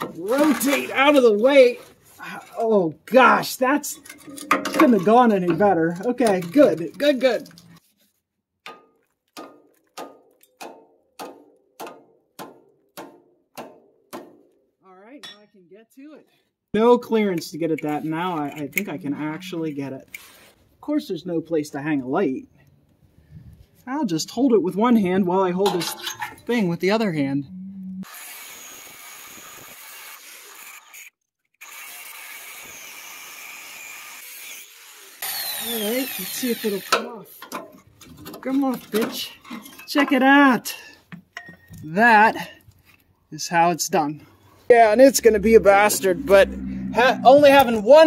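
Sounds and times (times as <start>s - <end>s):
angle grinder grinding metal: 3.8s - 7.8s, 28.0s - 37.1s, 44.8s - 48.0s
hammer striking steel: 8.7s - 14.4s.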